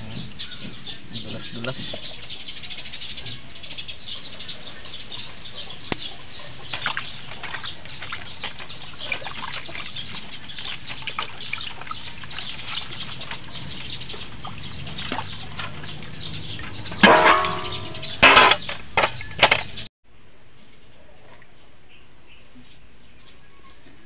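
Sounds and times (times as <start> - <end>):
metal basin clanging: 5.9 - 19.8
water splashing in metal basin: 5.9 - 19.8.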